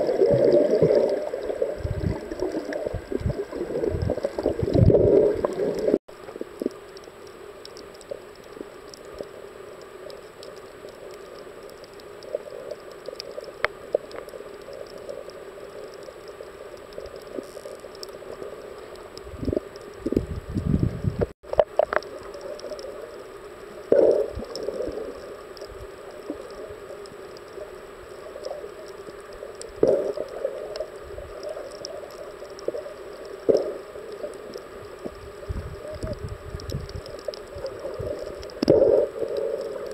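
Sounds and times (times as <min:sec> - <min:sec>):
low rumbling water swishes: 0:00.0 - 0:07.1, 0:18.2 - 0:39.9
dull underwater hum: 0:00.0 - 0:39.9.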